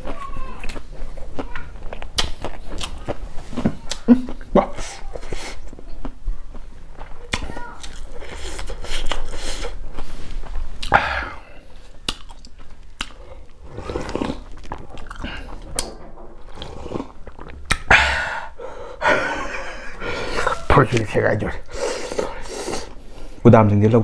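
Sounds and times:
chewing with wet mouth clicks: 0:00.0 - 0:04.5, 0:05.3 - 0:11.0, 0:11.9 - 0:16.0, 0:17.0 - 0:17.9
person drinking: 0:07.9 - 0:20.7, 0:21.6 - 0:23.4.

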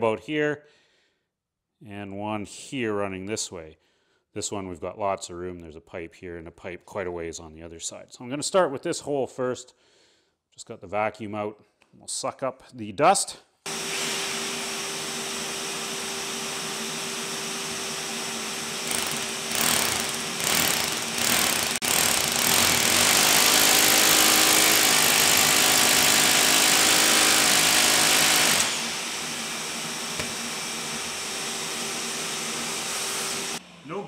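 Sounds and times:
shop vacuum running: 0:13.7 - 0:34.0
hammer drill boring into concrete: 0:18.5 - 0:33.6.

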